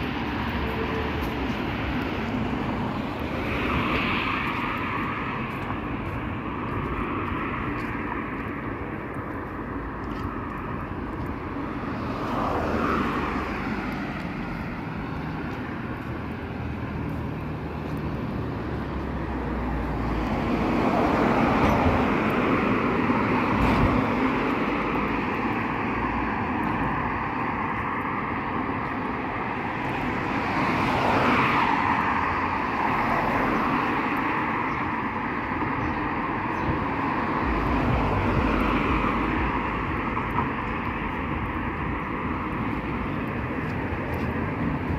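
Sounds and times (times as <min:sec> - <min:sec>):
cars passing close by: 0:00.0 - 0:44.9
road traffic hum: 0:00.0 - 0:44.9.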